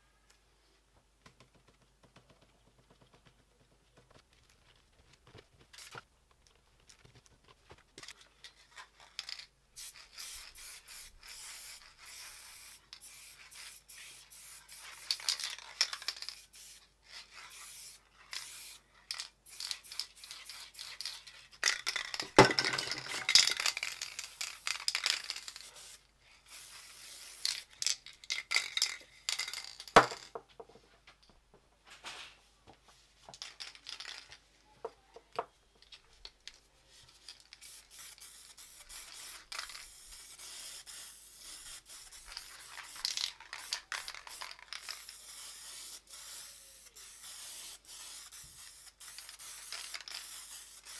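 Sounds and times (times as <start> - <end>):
spray paint can hissing: 9.2 - 30.2, 37.2 - 50.9.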